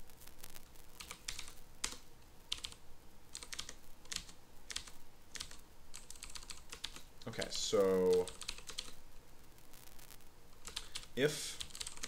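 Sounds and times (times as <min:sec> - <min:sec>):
computer keyboard typing: 0:01.0 - 0:07.1, 0:07.9 - 0:09.0, 0:10.5 - 0:12.0.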